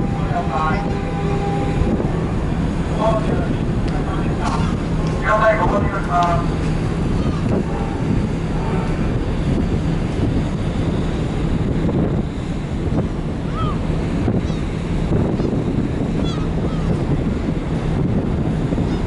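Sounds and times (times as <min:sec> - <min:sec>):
water rushing: 0:00.0 - 0:15.2
steady low hum: 0:00.0 - 0:19.0
wind buffeting microphone: 0:00.0 - 0:19.0.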